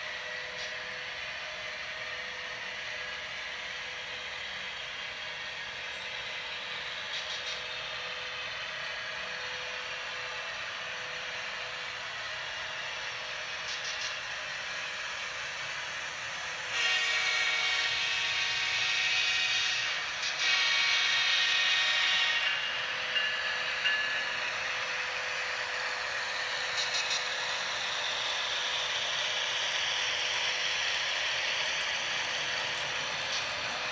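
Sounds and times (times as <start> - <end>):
locomotive horn blasts: 20.5 - 22.4
diesel engine drone: 24.4 - 33.9.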